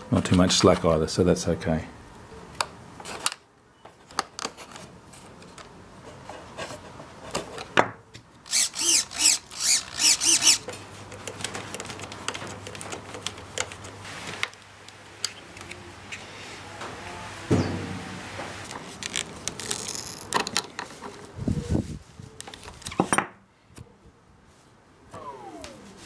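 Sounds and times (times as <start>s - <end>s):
servo whirring: 8.5s - 10.7s.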